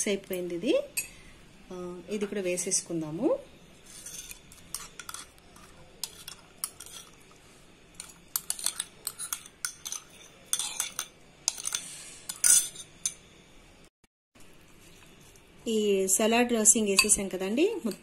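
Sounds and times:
spoon clinking against glass bowls: 4.1 - 7.2, 8.0 - 13.2, 16.9 - 17.3.

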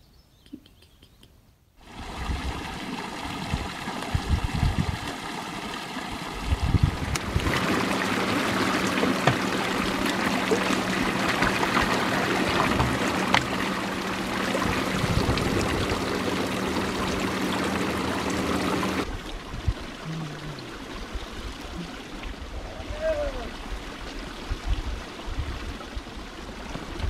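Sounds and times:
fountain water splashing into pool: 1.8 - 20.0
water filling plastic bottle: 6.8 - 19.1.

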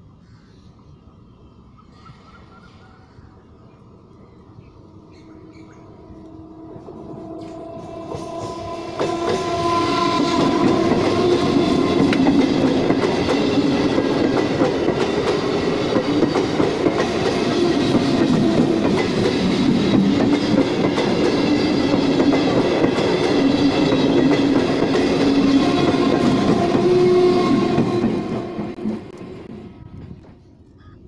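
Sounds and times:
train horn: 5.4 - 13.6, 23.2 - 28.8.

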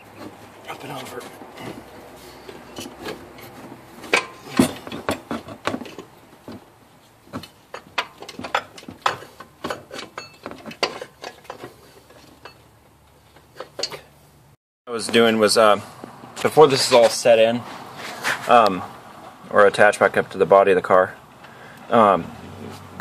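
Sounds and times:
metal housing knocking and scraping: 1.0 - 14.1.

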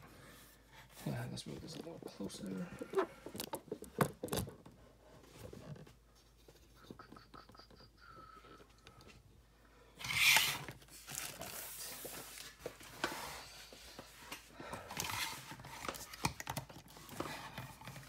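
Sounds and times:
plastic figures rustling: 1.0 - 6.8.

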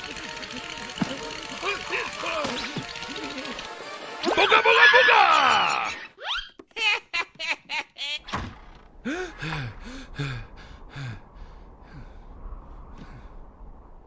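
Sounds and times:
cartoon cackling laughter: 2.9 - 8.3.

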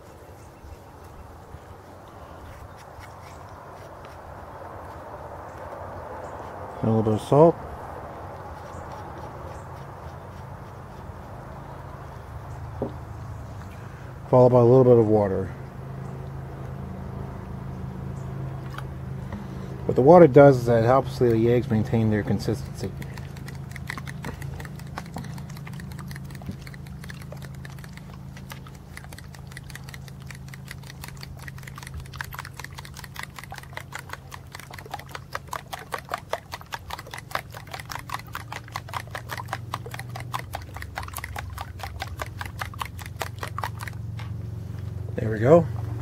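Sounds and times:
utensil clicking against cup: 22.4 - 44.0.

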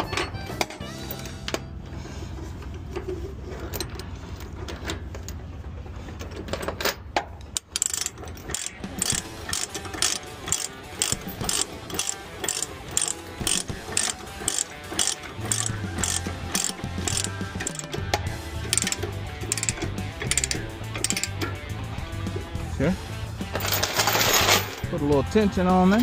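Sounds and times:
ratchet chain binder clicking: 6.2 - 21.6.

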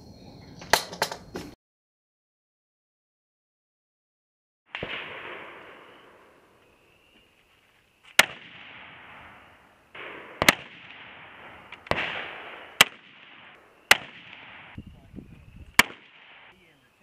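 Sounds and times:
rifle shots echoing: 4.7 - 7.1, 8.0 - 14.8, 15.7 - 16.8.

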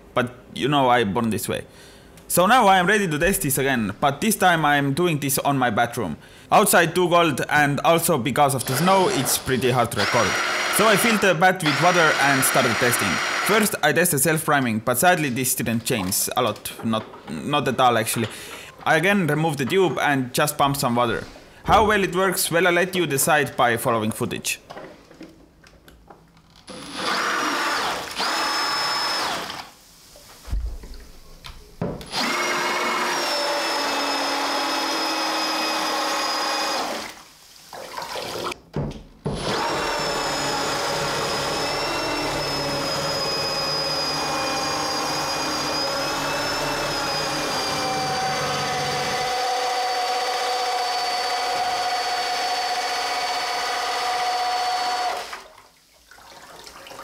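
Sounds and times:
power drill whine: 8.6 - 13.7, 26.7 - 29.8, 32.1 - 37.1, 39.4 - 55.4.

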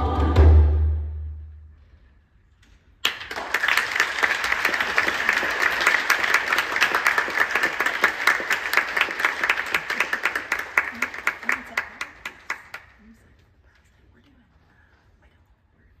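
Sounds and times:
audience applause: 3.0 - 13.0.

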